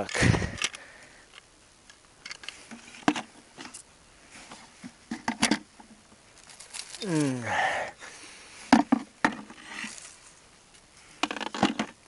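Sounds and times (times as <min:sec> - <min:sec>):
knocks and clicks of handling tools: 0:11.2 - 0:12.0.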